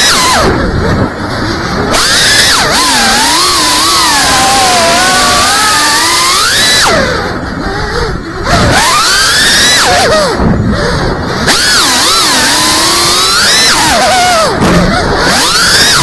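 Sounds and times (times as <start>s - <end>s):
quadcopter motors whining: 0.0s - 16.0s.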